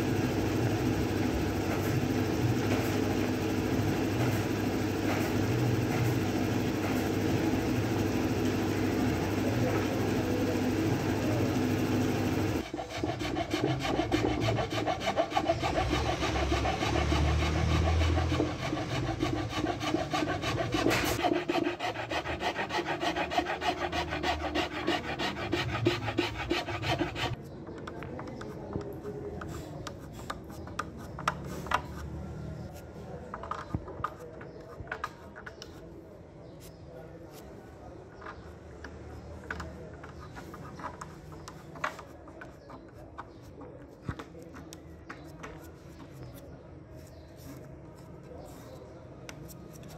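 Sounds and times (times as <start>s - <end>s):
hand-sanding wood: 12.4s - 27.4s.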